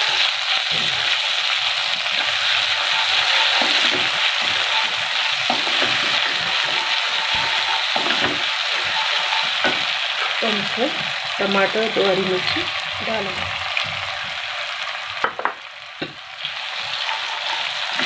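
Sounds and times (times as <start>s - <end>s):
spatula scraping a wok: 0.0s - 12.5s, 16.6s - 18.0s
onions sizzling in hot oil: 0.0s - 18.0s.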